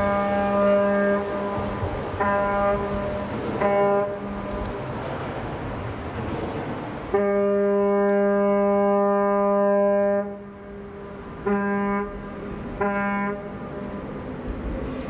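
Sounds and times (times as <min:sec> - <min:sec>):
deep ship horn blasts: 0:00.0 - 0:05.0, 0:07.0 - 0:14.0.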